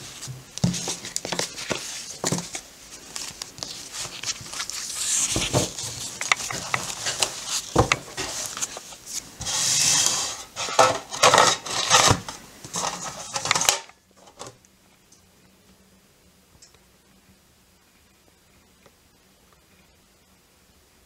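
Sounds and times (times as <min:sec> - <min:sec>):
postcards rustling and sliding: 0:00.0 - 0:13.9
faint hum: 0:13.8 - 0:21.0.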